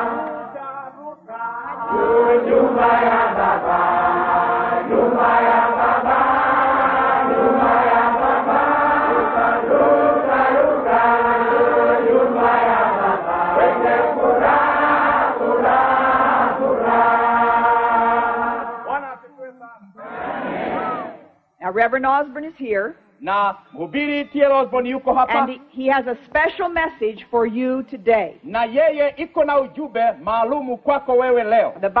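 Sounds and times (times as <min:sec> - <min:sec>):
congregation singing: 0:00.0 - 0:19.0, 0:19.8 - 0:21.4.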